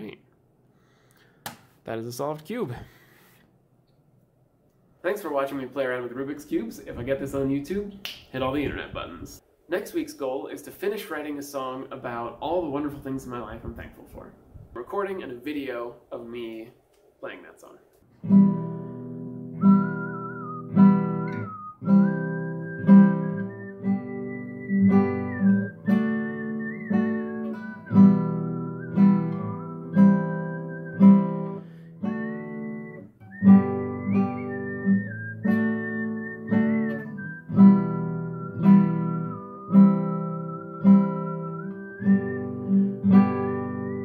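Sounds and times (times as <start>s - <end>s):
classical guitar strumming: 18.2s - 44.0s
whistled melody: 19.3s - 44.0s.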